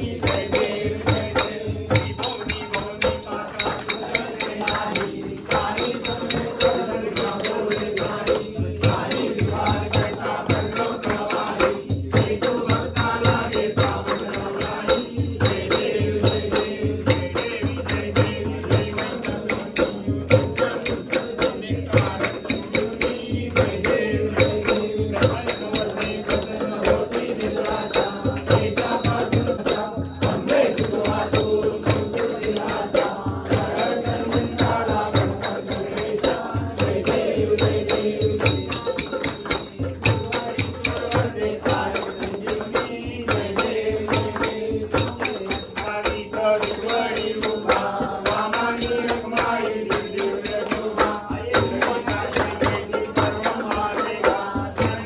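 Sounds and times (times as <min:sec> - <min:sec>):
bells ringing in rhythm: 0:00.0 - 0:55.0
devotional singing: 0:00.0 - 0:55.0
drum-like beat: 0:00.0 - 0:55.0.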